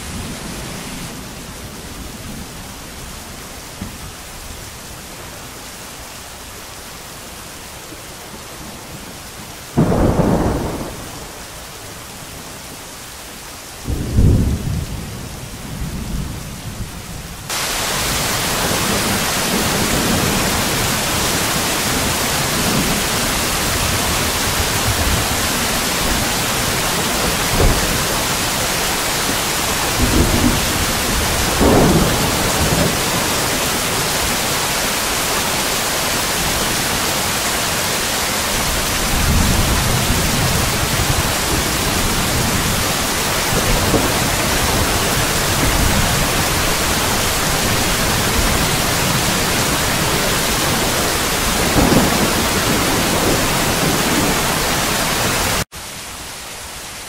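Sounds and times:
rain falling: 0.0 - 57.0
rolling thunder: 9.8 - 11.4, 13.8 - 34.6, 38.6 - 55.3.

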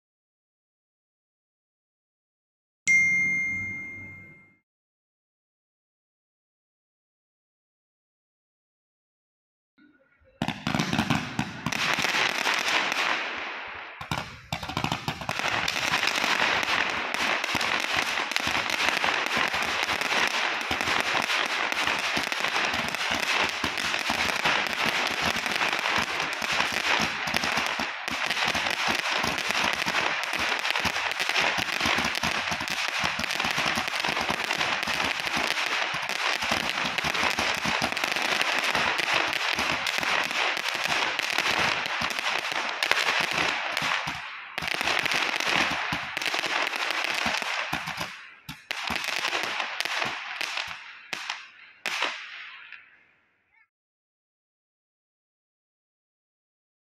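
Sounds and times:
fireworks popping and crackling: 10.4 - 52.8.

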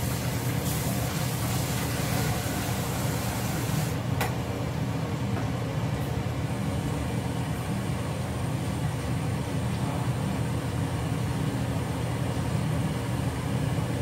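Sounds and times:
water running from tap: 0.0 - 4.0.

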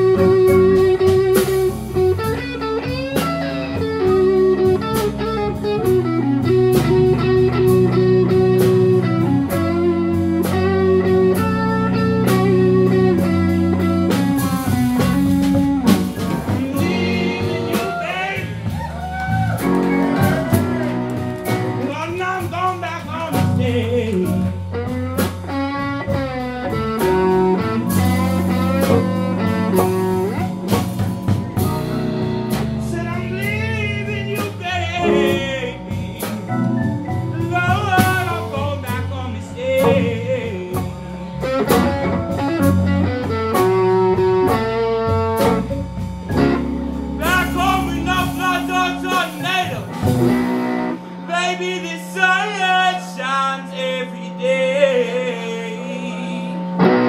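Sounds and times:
live slow blues band: 0.0 - 57.0
man singing: 16.2 - 18.7, 21.8 - 24.6, 32.8 - 41.1, 47.2 - 50.1, 51.3 - 56.8.

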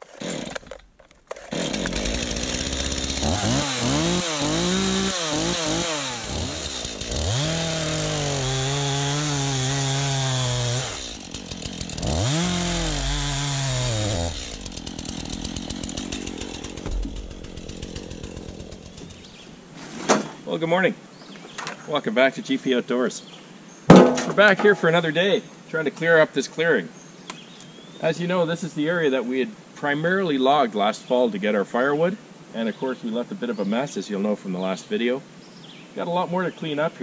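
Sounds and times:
chainsaw cutting log: 0.0 - 19.8.

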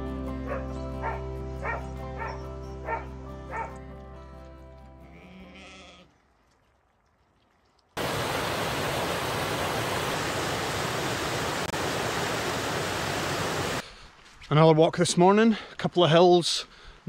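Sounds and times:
music: 0.0 - 5.6.

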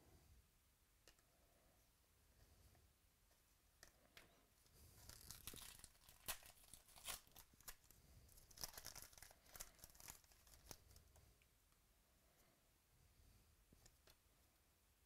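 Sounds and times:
foil wrapper tearing and crinkling: 5.0 - 10.8.

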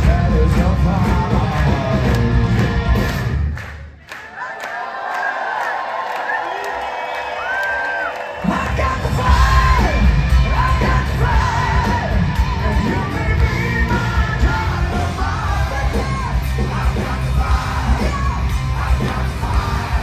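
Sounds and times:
heavy bass and drums: 0.0 - 3.6, 8.5 - 20.0
live band playing: 0.0 - 3.7, 8.6 - 20.0.

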